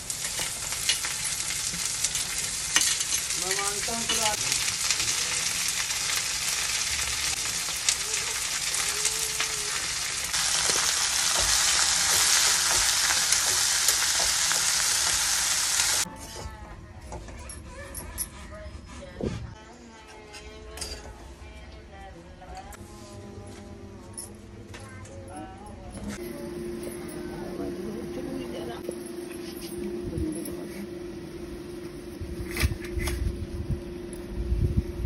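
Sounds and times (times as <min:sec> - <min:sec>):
okra sizzling in hot oil: 0:00.0 - 0:16.1.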